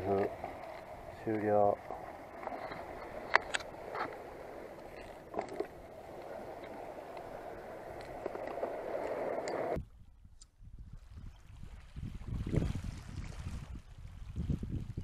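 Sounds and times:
sea water washing against seawall: 0.0 - 9.8.

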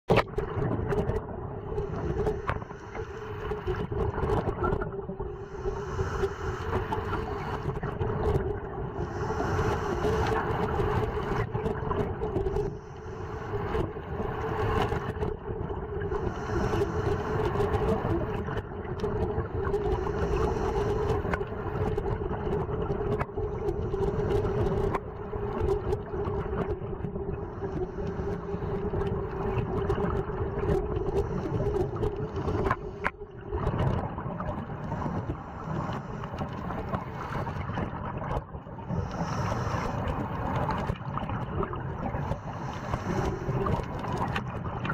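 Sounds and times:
exhaled bubbles hissing: 0.1 - 44.9
steady underwater hum: 0.1 - 44.9
diver breathing through regulator: 5.4 - 7.7, 9.0 - 11.4, 16.2 - 18.1, 19.9 - 21.4, 38.9 - 40.8, 42.2 - 43.9.

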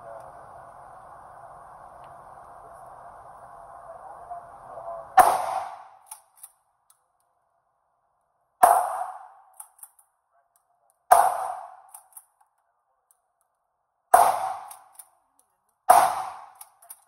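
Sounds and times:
shotgun shots with echo: 5.2 - 6.0, 8.6 - 9.4, 11.1 - 11.9, 14.1 - 14.9, 15.9 - 16.7.

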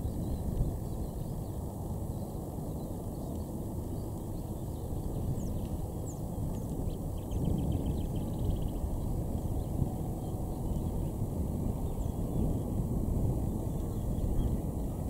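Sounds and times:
low rumble of outdoor background: 0.0 - 15.0.

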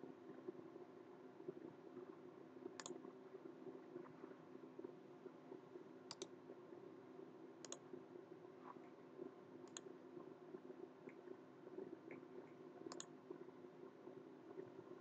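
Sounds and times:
faint steady hum: 0.0 - 15.0
computer mouse clicks: 2.8 - 3.0, 6.1 - 6.4, 7.6 - 7.9, 9.6 - 9.9, 12.1 - 13.2.

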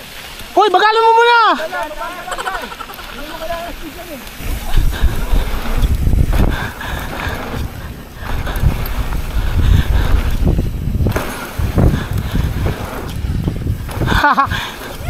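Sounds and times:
wind buffeting microphone: 3.4 - 15.0.

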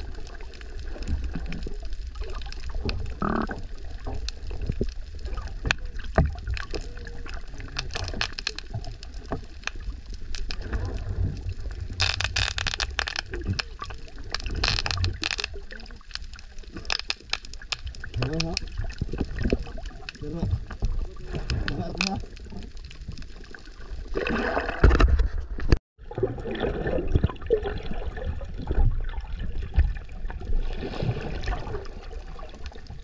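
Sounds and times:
water gurgling underwater: 0.0 - 33.0
scattered clicks: 12.0 - 20.6.

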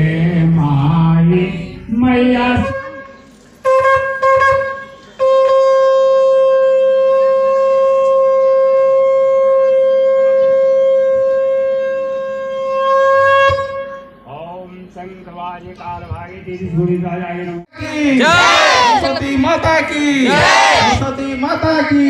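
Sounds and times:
conch shell blown: 2.6 - 14.2.

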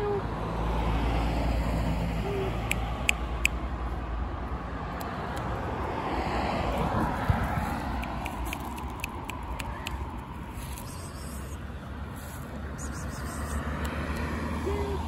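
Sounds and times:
street background noise: 0.0 - 15.0
vehicle low rumble: 0.0 - 15.0
short high chirps: 12.8 - 13.6.

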